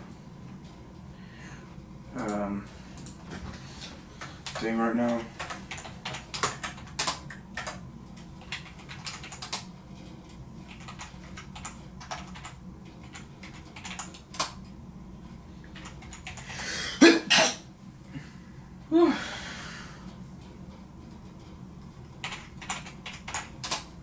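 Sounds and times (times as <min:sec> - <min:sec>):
typing on a computer keyboard: 0:04.2 - 0:09.7, 0:10.6 - 0:14.6, 0:15.7 - 0:16.5, 0:22.2 - 0:24.0
person breathing loudly: 0:16.4 - 0:17.0, 0:18.1 - 0:20.0.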